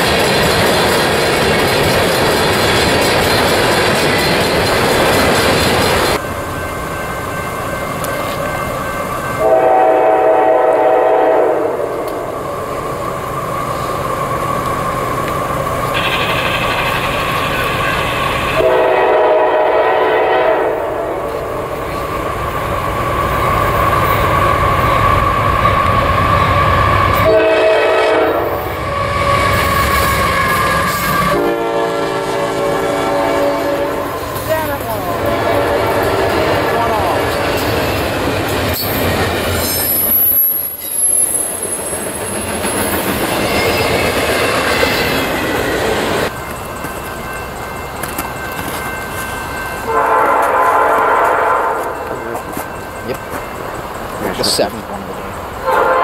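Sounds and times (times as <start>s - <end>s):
locomotive horn blasts: 9.4s - 12.1s, 18.6s - 21.4s, 27.1s - 29.5s, 30.4s - 34.2s, 35.2s - 36.8s, 49.9s - 52.1s, 55.6s - 56.0s.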